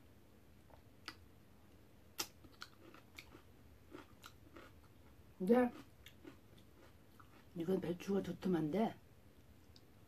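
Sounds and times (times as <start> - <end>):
chewing crunchy food: 2.2 - 7.6.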